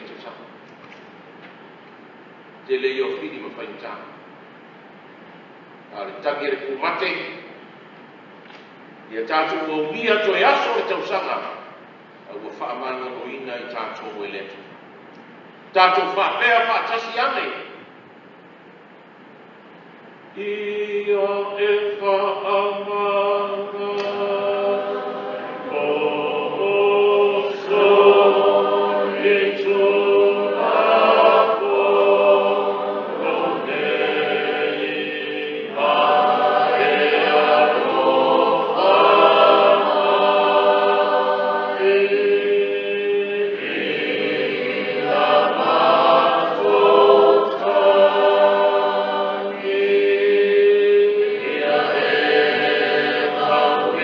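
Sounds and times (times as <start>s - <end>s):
choir singing a hymn: 20.4s - 54.0s.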